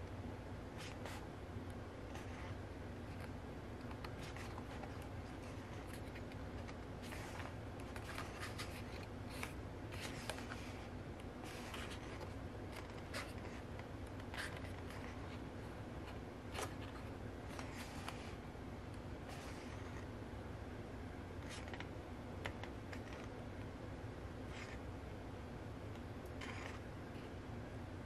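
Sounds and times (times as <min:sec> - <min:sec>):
book pages turning: 0:00.8 - 0:01.2, 0:02.1 - 0:15.4, 0:16.0 - 0:18.4, 0:19.2 - 0:20.1, 0:21.4 - 0:23.4, 0:26.3 - 0:26.8.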